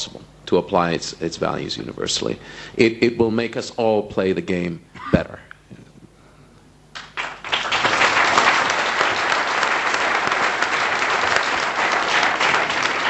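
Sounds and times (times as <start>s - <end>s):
audience applauding: 7.0s - 13.0s.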